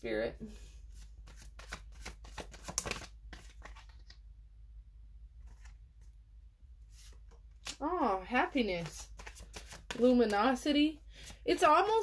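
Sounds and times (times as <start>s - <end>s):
cards being shuffled: 0.9s - 4.2s, 8.7s - 10.6s.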